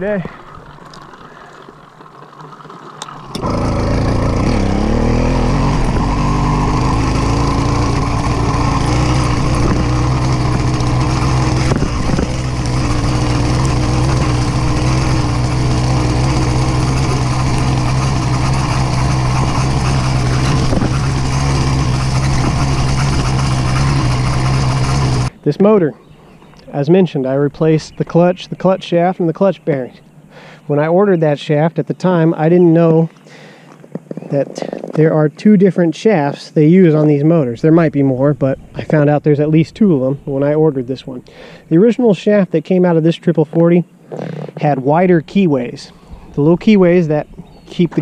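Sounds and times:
small engine starting and idling: 0:00.0 - 0:25.4, 0:41.2 - 0:41.8, 0:44.1 - 0:48.0.

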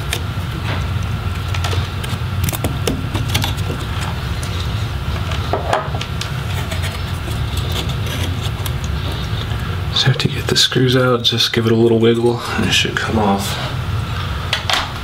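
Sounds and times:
low background hum: 0:00.0 - 0:15.0
screwdriver clicking and scraping: 0:02.0 - 0:04.5, 0:06.4 - 0:09.6.

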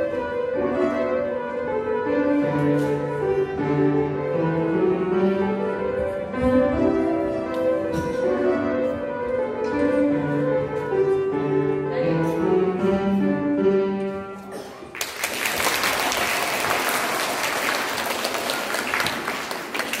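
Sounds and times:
upright piano playing: 0:00.0 - 0:14.7
audience applause: 0:14.9 - 0:20.0.

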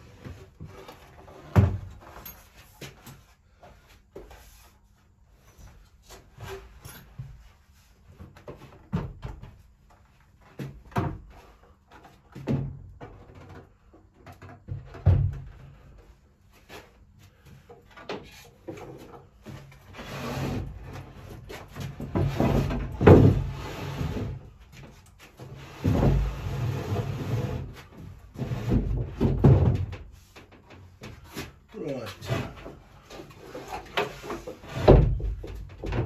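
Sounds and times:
wooden knocks and bumps: 0:00.1 - 0:04.3, 0:08.1 - 0:15.9, 0:21.2 - 0:27.2, 0:27.8 - 0:36.0.

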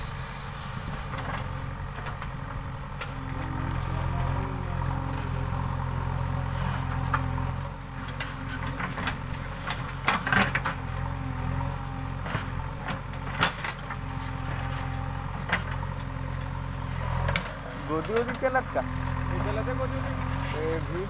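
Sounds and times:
diesel engine running under load: 0:00.0 - 0:21.0.

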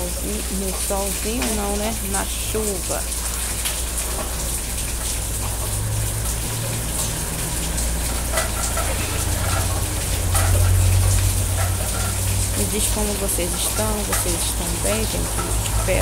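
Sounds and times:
steady rain falling: 0:00.0 - 0:16.0.

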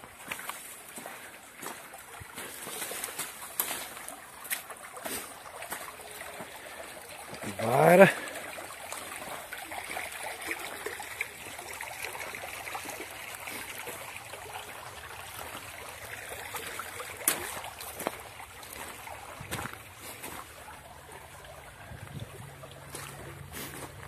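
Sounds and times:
footsteps on leafy dirt trail: 0:00.0 - 0:08.2, 0:15.4 - 0:24.0
stream trickling: 0:00.0 - 0:24.0.

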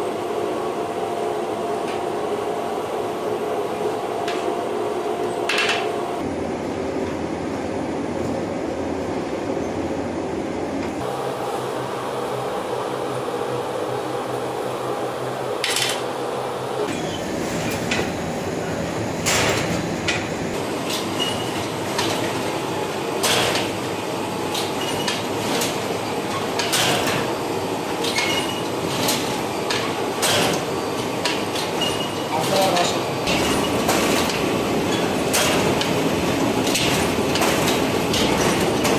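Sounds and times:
dough machine rattling and clacking: 0:19.2 - 0:38.9.

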